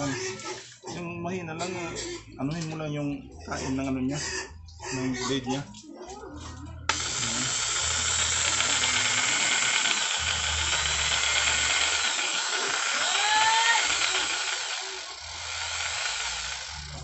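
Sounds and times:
electric jigsaw running: 6.9 - 17.0.

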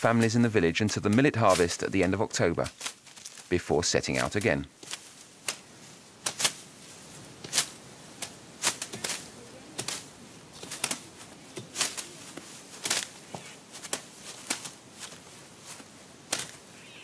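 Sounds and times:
dry stalks cracking: 0.0 - 16.9.

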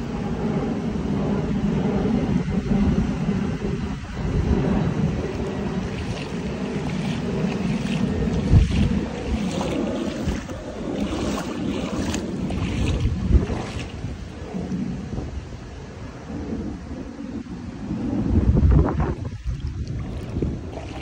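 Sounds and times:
wind rumbling on microphone: 0.0 - 21.0
rain falling on flooded street: 5.8 - 14.0
sharp splashes or knocks: 5.9 - 14.0.

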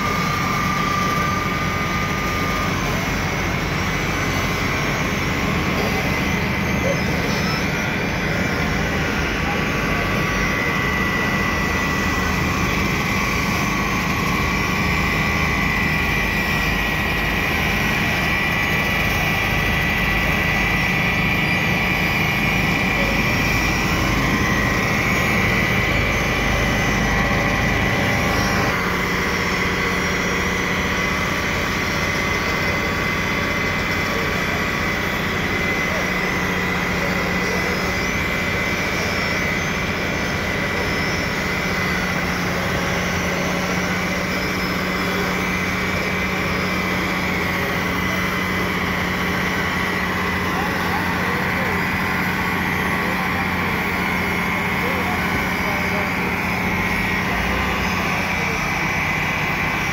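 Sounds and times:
diesel engines running: 0.0 - 59.9
steady high whine: 0.0 - 59.9.

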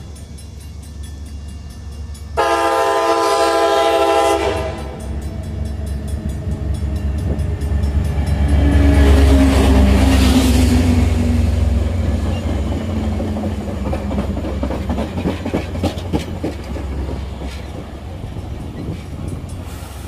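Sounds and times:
locomotive engine and wheels passing: 0.0 - 20.0
train horn blast: 2.4 - 5.1.

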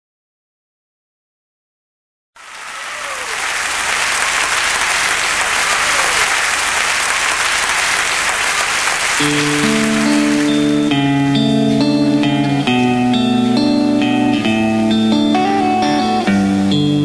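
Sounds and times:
crowd applause: 2.4 - 11.1.

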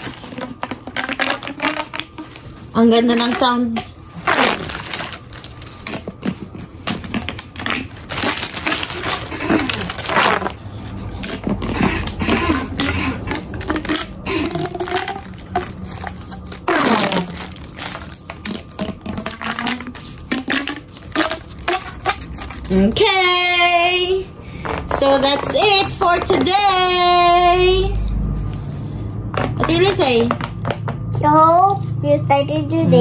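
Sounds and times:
plastic pop tubes crackling: 0.0 - 22.8, 24.6 - 26.8, 29.3 - 31.0.

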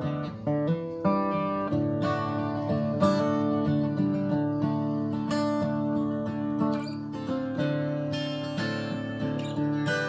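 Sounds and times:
acoustic guitar strummed and picked: 0.0 - 10.0.

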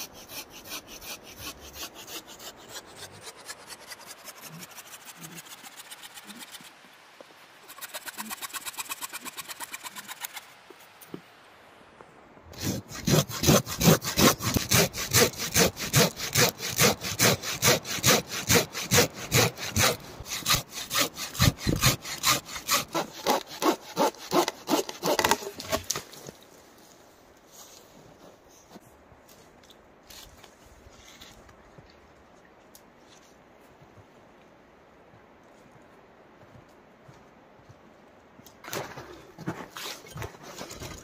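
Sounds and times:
hand saw cutting wood: 0.0 - 6.8, 7.7 - 10.4, 12.6 - 26.2.

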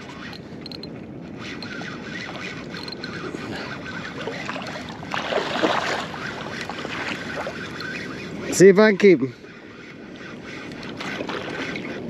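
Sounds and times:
wind on microphone: 0.0 - 12.0
shallow water sloshing: 1.5 - 8.2, 10.7 - 12.0.

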